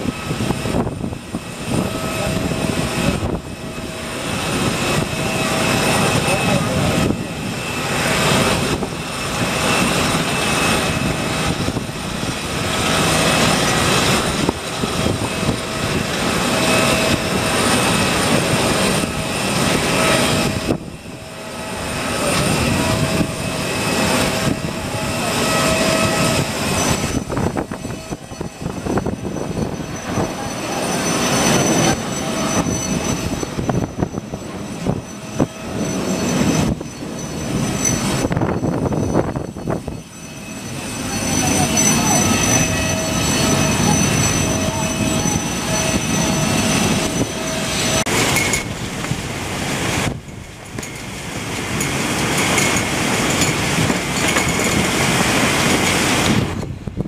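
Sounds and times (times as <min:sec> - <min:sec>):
jet engines roaring: 0:00.0 - 0:57.0.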